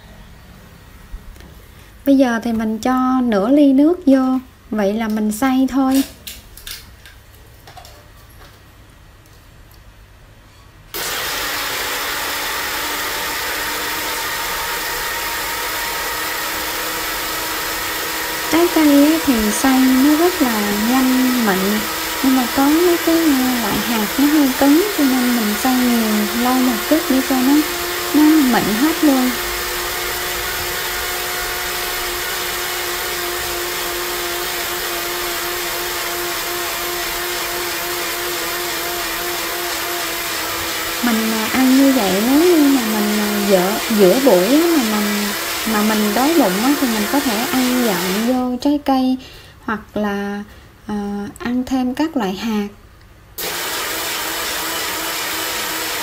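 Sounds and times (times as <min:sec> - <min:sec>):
blender running: 0:11.0 - 0:48.4, 0:53.4 - 0:56.0.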